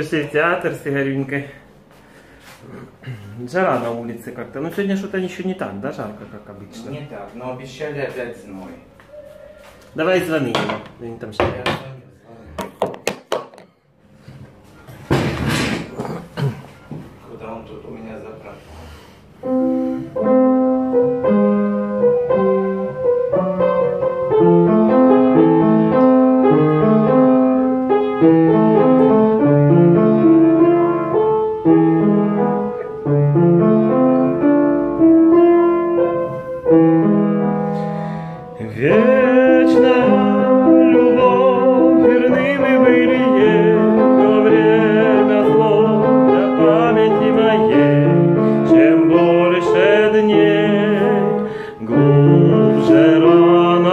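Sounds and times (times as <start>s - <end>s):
piano playing chords: 19.3s - 53.9s
person singing with vibrato: 38.2s - 53.9s.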